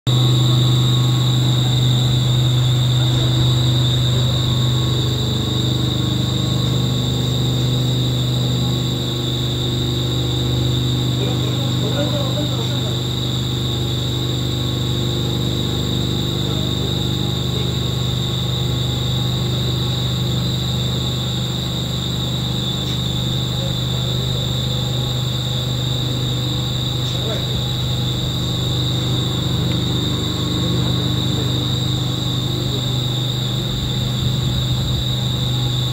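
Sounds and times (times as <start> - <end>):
pump high whine: 0.1 - 35.9
pump low hum: 0.1 - 35.9.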